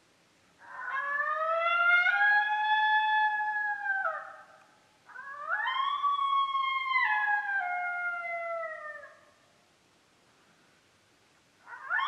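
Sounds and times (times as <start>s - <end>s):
coyote howl: 0.6s - 9.4s, 11.6s - 12.0s.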